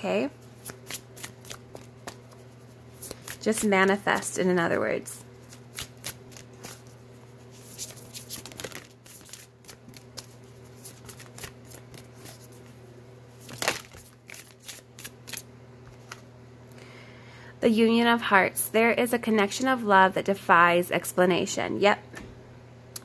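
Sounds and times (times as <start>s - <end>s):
cards being shuffled: 0.4s - 4.3s, 5.4s - 12.8s, 13.4s - 16.3s.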